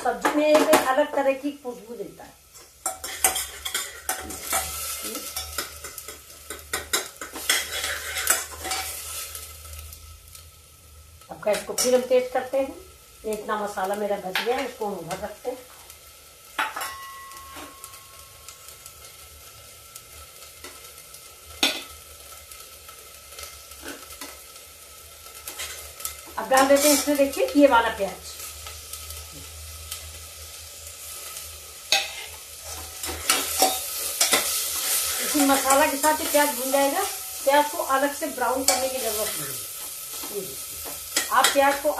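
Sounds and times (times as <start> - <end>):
paste sizzling: 1.7 - 41.9
spoon scraping a pot: 2.8 - 9.2, 26.6 - 27.2, 31.9 - 35.1.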